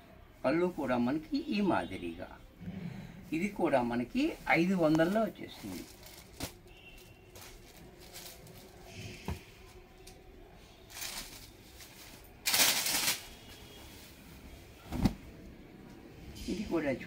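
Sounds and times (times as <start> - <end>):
fabric rustling: 3.4 - 9.0, 10.8 - 15.5
fabric swish: 11.1 - 15.4
soft thump: 14.9 - 15.3.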